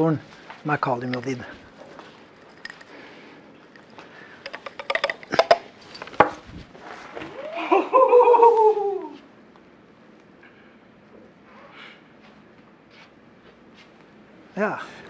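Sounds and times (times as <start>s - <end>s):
glassware clinking: 3.8s - 6.3s
person exclaiming in amazement: 7.4s - 9.2s.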